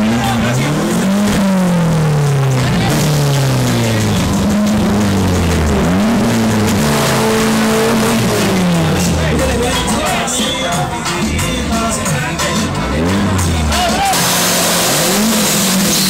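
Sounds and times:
car engine revving: 0.0s - 16.0s.

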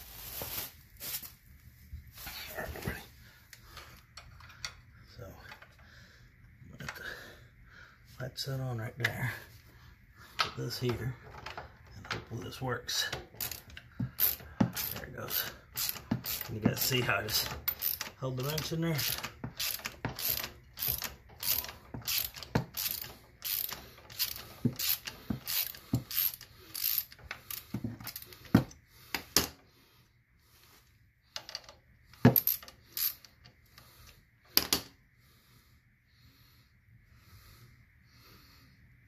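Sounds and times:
hand ratchet clicking: 13.3s - 28.6s.

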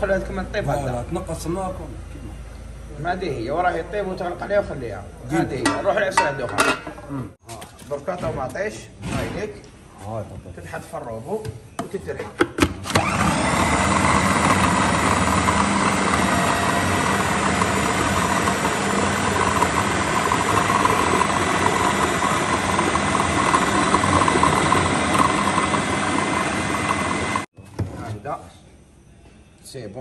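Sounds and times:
food processor motor whirring: 12.8s - 27.5s.

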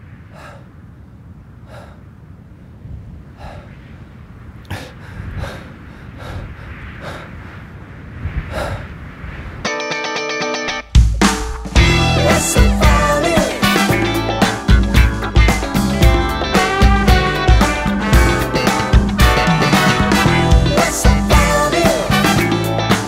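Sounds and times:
low wind rumble: 0.0s - 9.7s, 11.0s - 22.9s
person breathing heavily: 0.3s - 0.8s, 1.6s - 2.2s, 3.3s - 3.8s, 4.6s - 7.6s, 8.4s - 9.0s
held musical chord: 11.8s - 22.9s.

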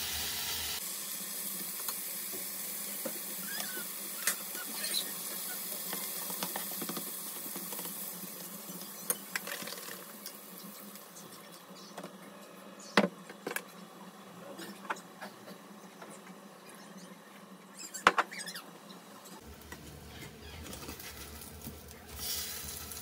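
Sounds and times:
bacon sizzling in a frying pan: 0.0s - 11.2s, 20.7s - 23.0s.

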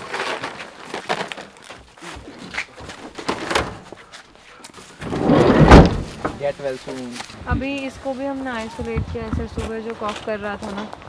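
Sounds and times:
van sliding door shutting: 5.0s - 6.4s.

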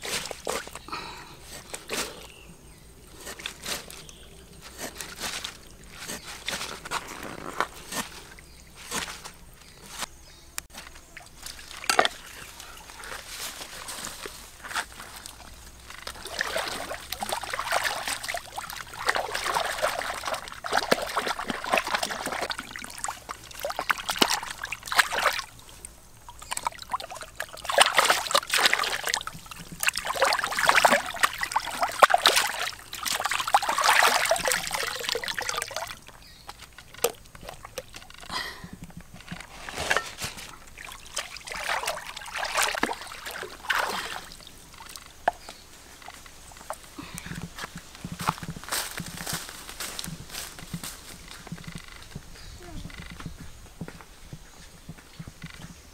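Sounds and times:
water splashing: 11.1s - 13.1s, 15.0s - 38.5s, 39.3s - 47.4s.

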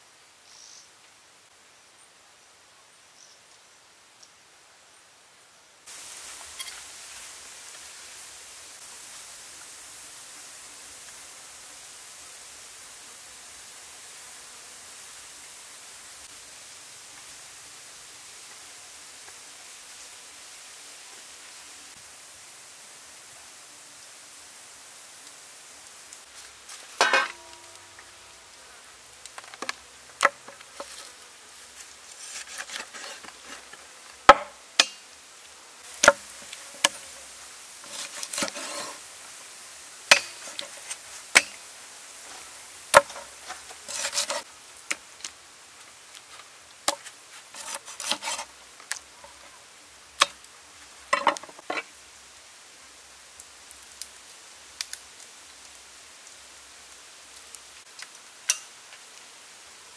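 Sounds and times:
rustling and scraping: 6.3s - 7.2s, 26.3s - 27.8s, 29.3s - 33.9s, 36.0s - 39.1s, 40.2s - 41.2s, 42.2s - 44.5s, 46.2s - 48.6s.

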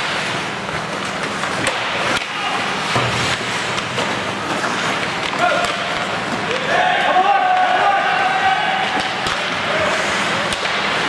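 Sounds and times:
skates hissing on ice: 9.4s - 11.0s.

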